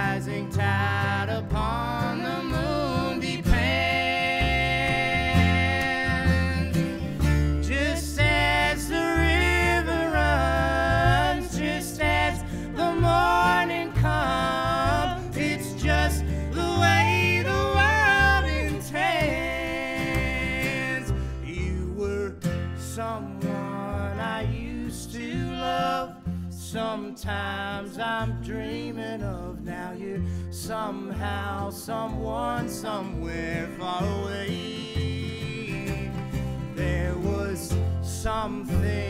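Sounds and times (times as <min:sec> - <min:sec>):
woman and man singing in harmony: 0:00.0 - 0:22.2, 0:23.4 - 0:30.1
plucked upright bass: 0:00.0 - 0:39.0
strummed acoustic guitar: 0:00.0 - 0:39.0.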